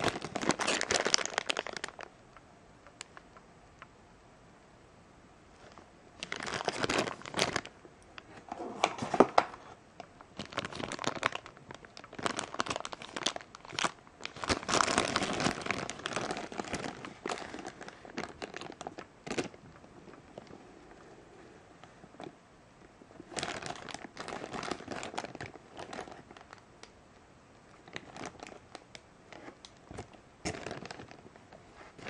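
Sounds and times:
plastic bags crinkling: 0:00.0 - 0:02.1, 0:05.6 - 0:20.5, 0:23.1 - 0:26.6, 0:27.7 - 0:32.0.

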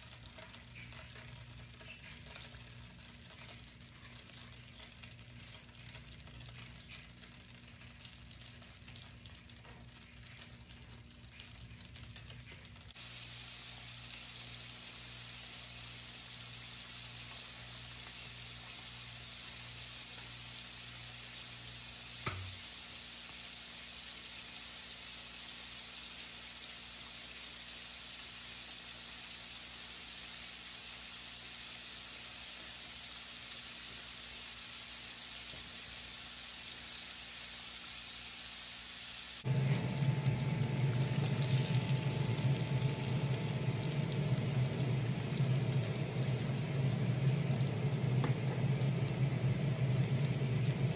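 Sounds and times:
fish frying in hot oil: 0:00.0 - 0:50.9
steady mechanical hum: 0:39.4 - 0:50.9.

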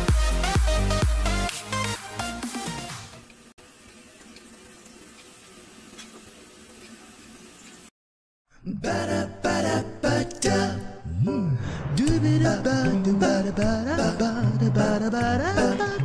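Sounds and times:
music with singing: 0:08.7 - 0:16.0.

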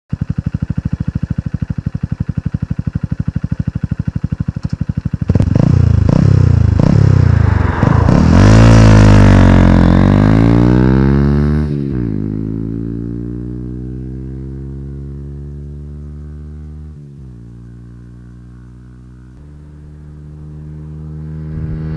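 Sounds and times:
motorcycle engine idling: 0:00.1 - 0:07.8, 0:13.6 - 0:21.9
motorcycle engine revving: 0:00.1 - 0:21.9
motorcycle accelerating hard: 0:00.2 - 0:21.9.

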